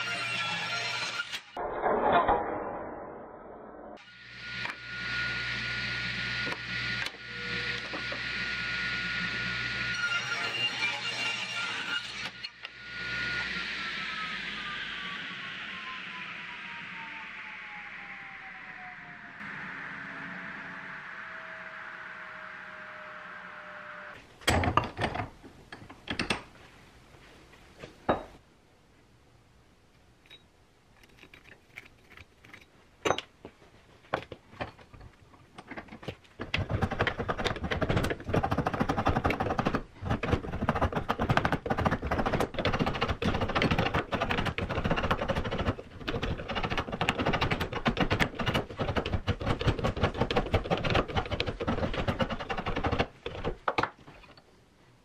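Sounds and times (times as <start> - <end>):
scattered knocks and clicks: 35.6 - 53.9.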